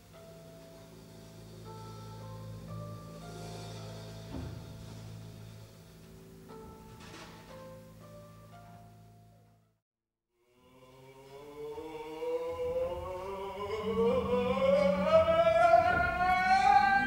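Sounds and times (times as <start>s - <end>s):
low hum: 0.0s - 9.5s.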